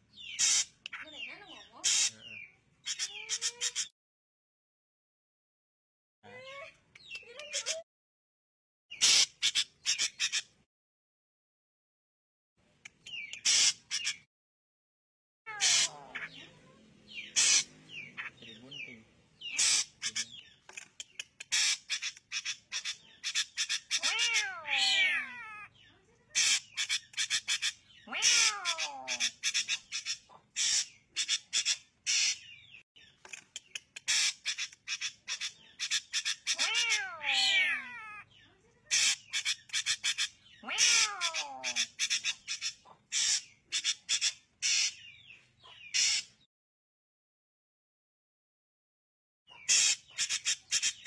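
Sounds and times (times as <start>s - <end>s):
bird chattering calls: 0.2s - 3.9s, 8.9s - 10.6s, 12.9s - 14.3s, 15.5s - 24.6s, 26.4s - 37.9s, 38.9s - 46.5s, 49.5s - 51.0s.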